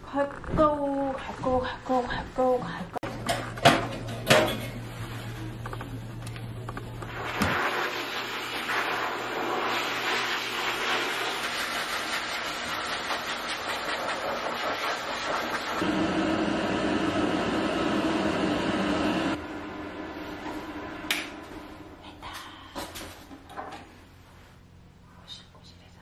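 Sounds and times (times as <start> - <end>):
hair dryer blowing: 15.7 - 21.6.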